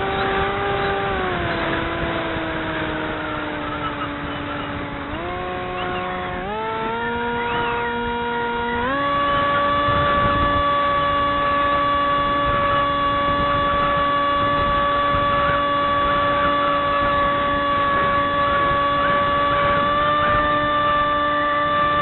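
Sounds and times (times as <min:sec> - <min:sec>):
model aircraft motor whining: 0:00.0 - 0:22.0
wind rush on microphone: 0:00.0 - 0:22.0.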